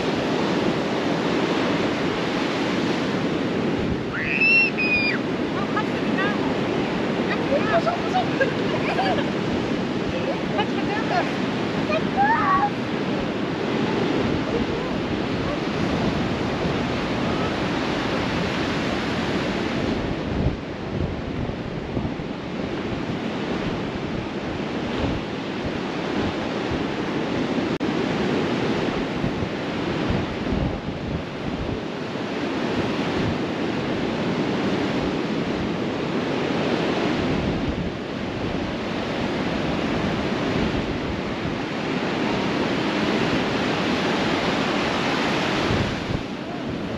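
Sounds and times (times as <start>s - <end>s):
surf washing onto beach: 0.0s - 46.9s
wind buffeting microphone: 0.0s - 46.9s.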